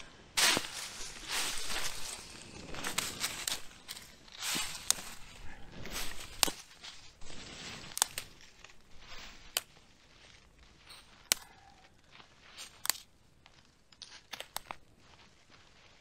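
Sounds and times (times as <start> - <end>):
rustling in dry leaves: 0.0 - 13.1
dry sticks snapping: 0.4 - 7.1, 7.8 - 9.8, 11.0 - 11.9, 12.6 - 13.1, 14.0 - 14.8.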